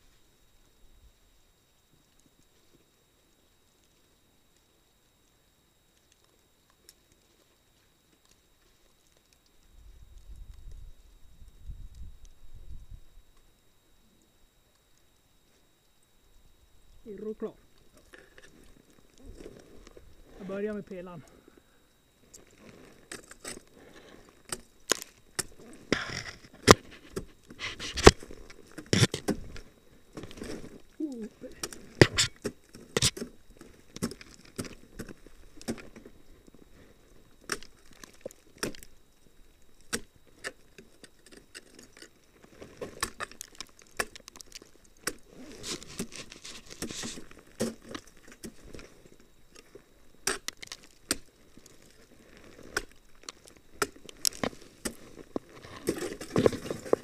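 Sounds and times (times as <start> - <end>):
ice crackling: 17.1 - 39.0, 39.9 - 57.0
ice axes striking ice: 39.9 - 40.1, 42.9 - 48.5, 50.2 - 51.3.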